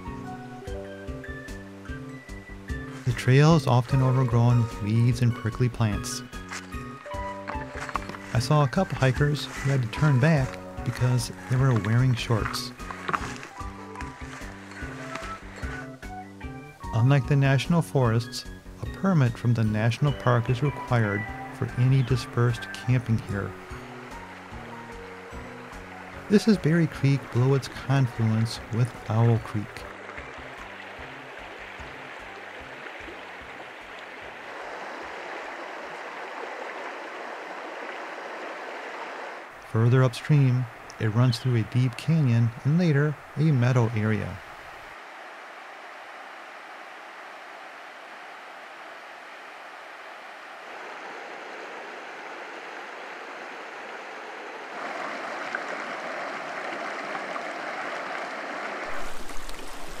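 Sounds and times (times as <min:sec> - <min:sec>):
creek water rushing over gravel: 0:00.0 - 1:00.0.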